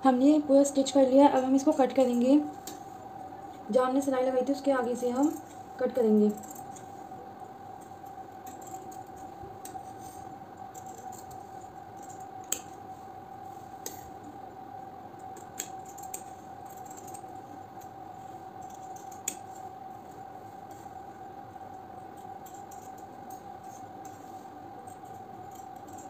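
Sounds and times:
faint hum: 0:00.0 - 0:26.0
scissor blades clicking: 0:15.4 - 0:17.2, 0:25.4 - 0:26.0
scissors cutting cloth: 0:15.4 - 0:17.3, 0:22.2 - 0:26.0.

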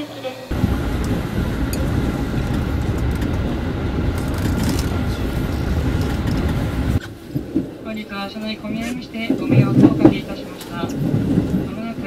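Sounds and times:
thin steady whine: 0:00.0 - 0:07.2
train rumbling on track: 0:00.0 - 0:12.0.

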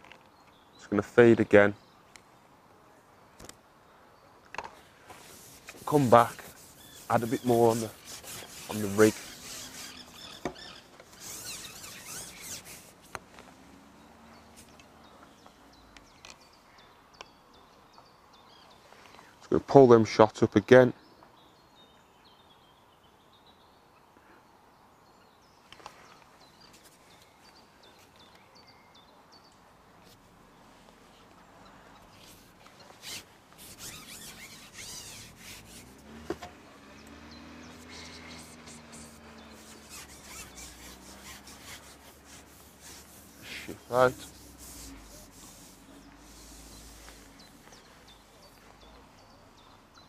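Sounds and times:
fishing pole rubbing and rustling: 0:04.8 - 0:15.0, 0:32.1 - 0:48.7
faint bird chirps: 0:06.5 - 0:12.9, 0:30.5 - 0:50.0.

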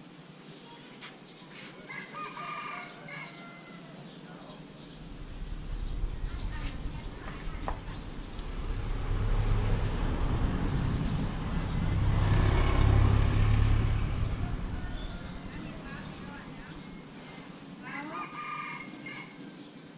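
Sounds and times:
passing motor vehicle rumble: 0:04.6 - 0:17.9.

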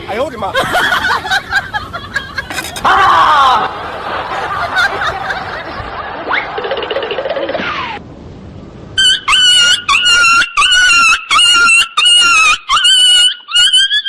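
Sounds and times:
high-pitched squealing cries: 0:09.0 - 0:14.0.

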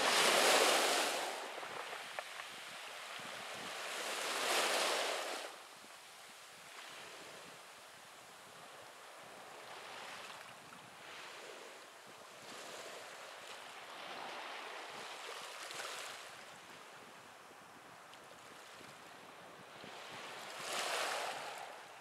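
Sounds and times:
small waves on pebble beach: 0:00.0 - 0:05.6, 0:12.4 - 0:16.5, 0:19.7 - 0:22.0.

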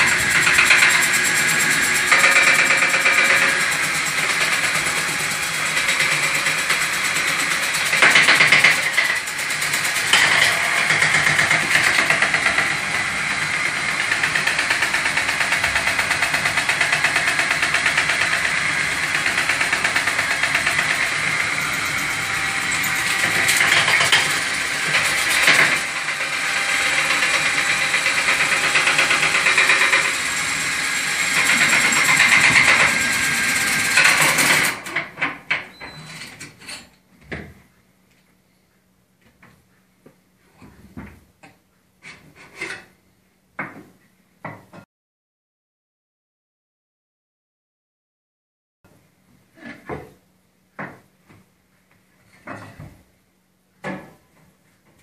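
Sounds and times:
cordless drill spinning rod in flue: 0:17.0 - 0:34.6.

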